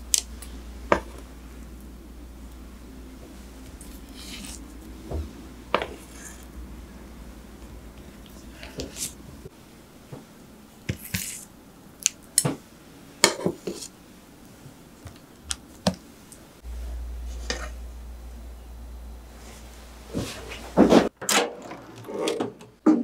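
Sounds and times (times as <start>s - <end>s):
steady low hum: 0.0s - 10.9s, 13.9s - 21.1s.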